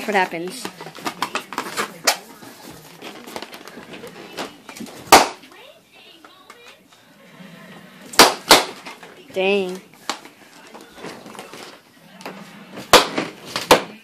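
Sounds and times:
balloon pops: 5.1s - 5.4s, 8.1s - 8.9s.

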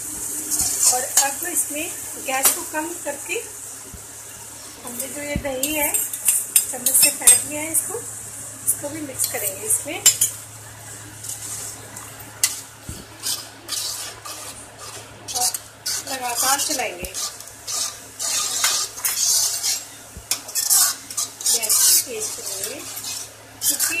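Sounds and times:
ladle stirring thick gravy: 9.2s - 24.0s.

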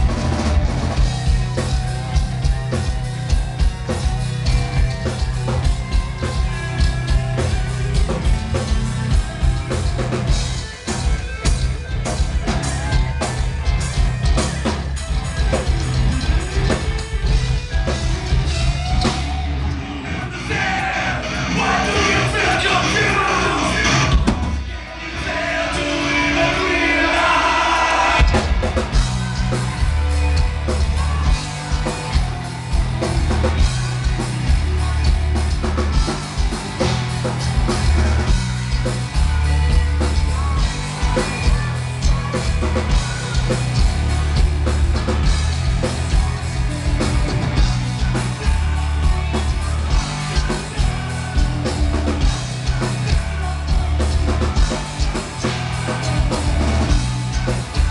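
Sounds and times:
live metal band playing: 0.0s - 57.9s
male and female vocals: 25.0s - 32.3s.

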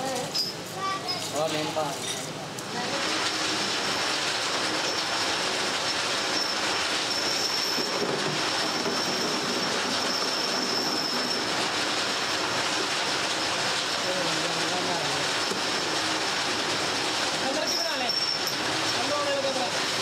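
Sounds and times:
workshop machinery rushing: 0.3s - 20.0s
thin high whine: 4.7s - 12.6s.

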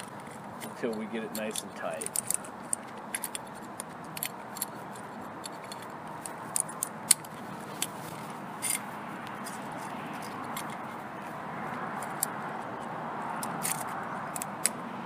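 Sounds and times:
wrench metallic clicks: 0.0s - 7.9s, 13.4s - 14.8s.

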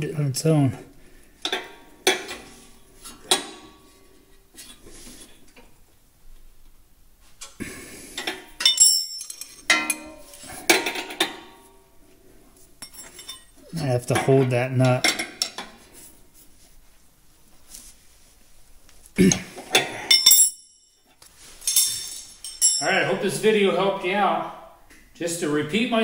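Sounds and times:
wrench set down on concrete: 8.2s - 11.6s, 21.6s - 22.8s
wrench clinking against nut: 8.6s - 10.2s, 20.1s - 20.8s.

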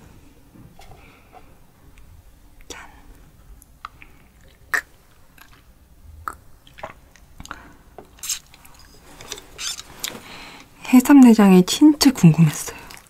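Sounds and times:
breathy hiss: 2.6s - 4.8s
wet mouth clicks and swallows: 3.7s - 8.9s.

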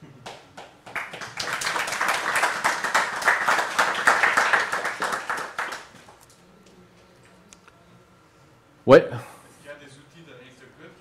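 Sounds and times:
audience applauding: 0.2s - 6.2s.

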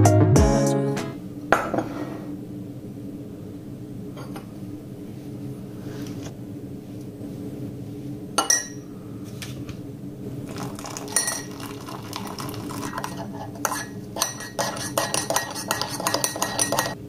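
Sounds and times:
low steady hum: 1.1s - 17.0s
dishes and glassware clinking: 8.4s - 8.8s, 10.6s - 17.0s.

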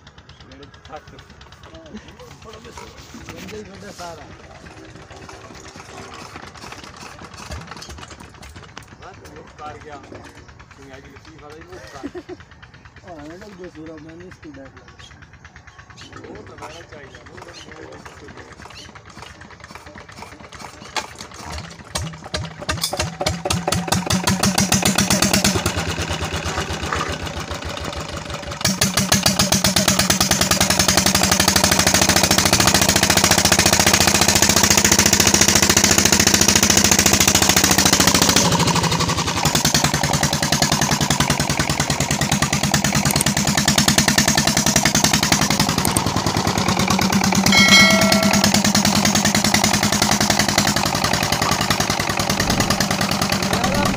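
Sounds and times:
water pump running: 0.0s - 14.6s, 16.1s - 53.9s
diesel engine starting and running: 0.0s - 53.9s
chime of clear tones: 47.5s - 48.8s.

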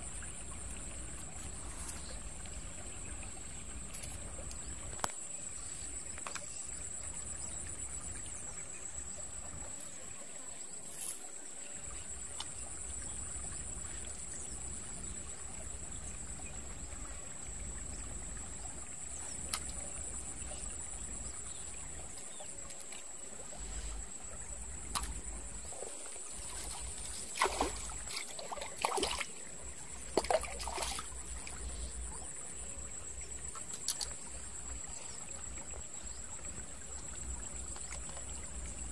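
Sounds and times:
stream trickling: 0.0s - 38.9s
fish splashing in water: 26.3s - 31.6s.

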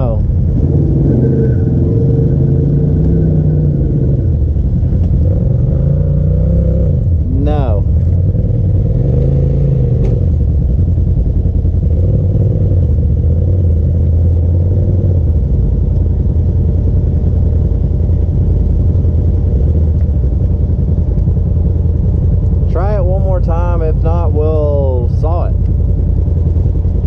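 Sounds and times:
vehicle engine running: 0.0s - 27.0s.

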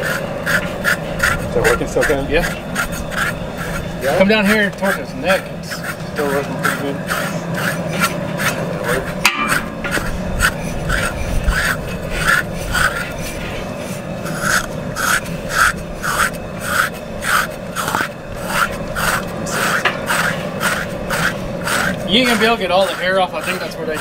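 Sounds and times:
metal scrapers rasping hide: 0.0s - 24.0s.

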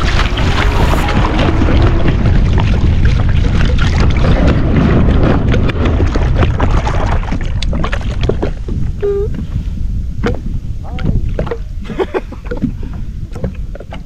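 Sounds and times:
water slapping against hull: 0.0s - 14.0s
wind buffeting microphone: 0.0s - 14.0s.

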